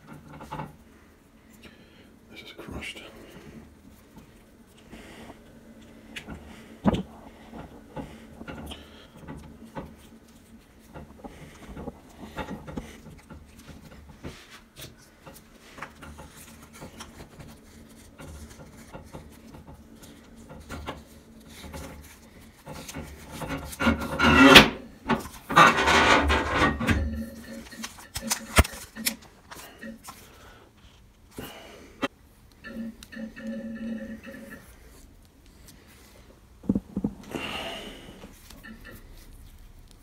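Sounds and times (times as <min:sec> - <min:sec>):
hands rubbing and handling hose: 0:03.6 - 0:31.4, 0:38.2 - 0:40.0.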